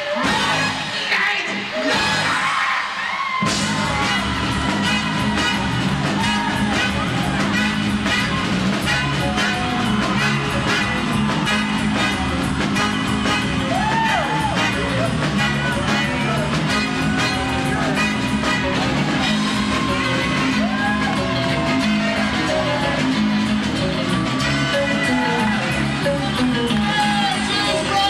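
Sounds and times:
soul band music: 0.0s - 28.0s
person singing: 17.2s - 28.0s.

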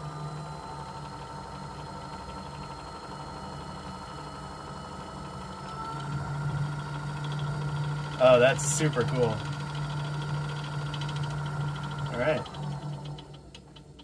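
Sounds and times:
lathe motor humming: 0.0s - 14.0s.

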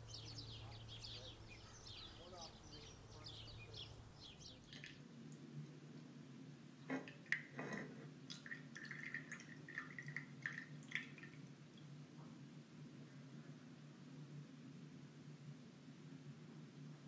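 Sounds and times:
faint low hum: 0.0s - 17.0s
juice dripping into glass: 7.0s - 7.6s, 8.3s - 11.9s.

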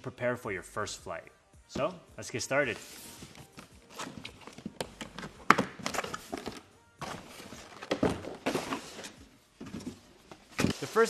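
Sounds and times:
cardboard thunks and scrapes: 7.0s - 11.0s.

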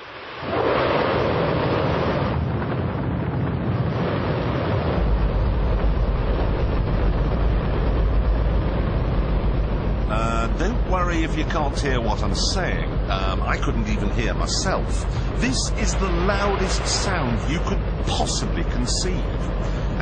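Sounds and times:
rocket engine roaring: 0.0s - 20.0s.

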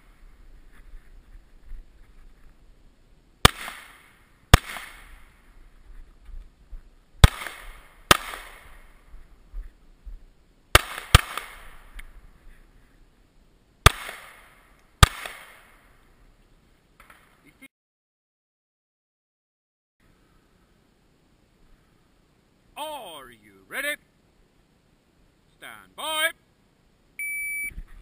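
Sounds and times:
pistol shots with echo: 3.4s - 5.1s, 7.2s - 8.8s, 10.8s - 11.8s, 13.8s - 15.7s.

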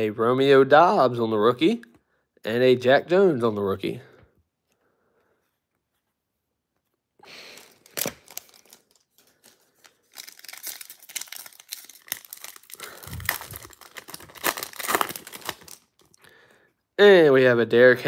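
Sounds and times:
foil wrapper tearing and crinkling: 7.4s - 16.2s.

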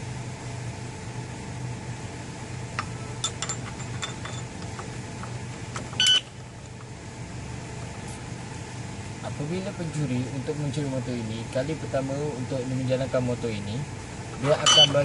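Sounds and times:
steady low hum: 0.0s - 15.0s
short loud electronic beep: 14.6s - 15.0s.

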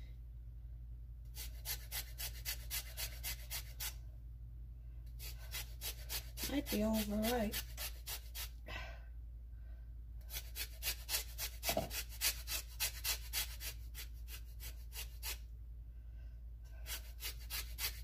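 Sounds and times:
grater scraping lemon rind: 1.3s - 4.0s, 5.2s - 8.5s, 10.2s - 15.4s, 16.9s - 18.0s.

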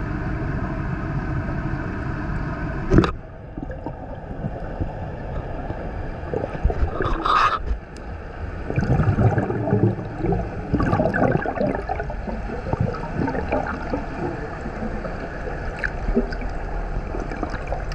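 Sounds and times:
muffled underwater rush: 0.0s - 17.9s
air bubbles gurgling: 2.9s - 7.8s, 8.5s - 17.9s.

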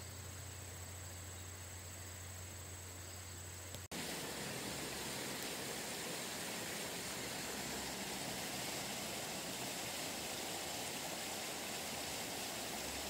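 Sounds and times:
river rushing: 3.9s - 13.0s.

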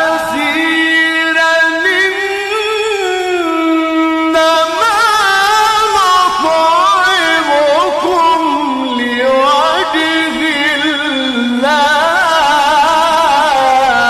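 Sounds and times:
man reciting in melodic chant: 0.0s - 14.0s.

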